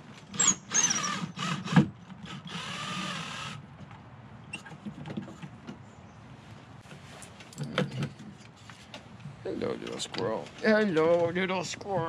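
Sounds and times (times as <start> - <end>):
cordless drill driving screw: 0.3 - 3.6.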